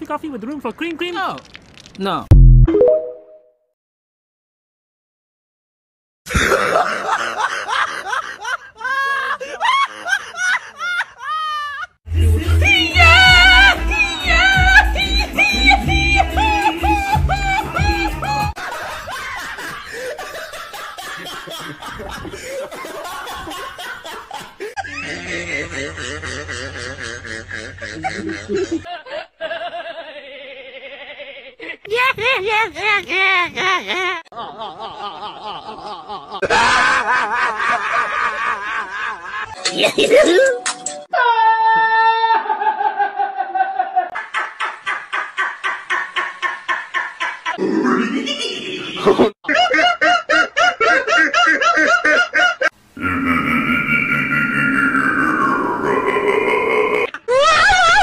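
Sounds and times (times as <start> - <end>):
person laughing in bursts: 6.3 - 40.7, 42.4 - 58.0
singing music: 12.1 - 18.6.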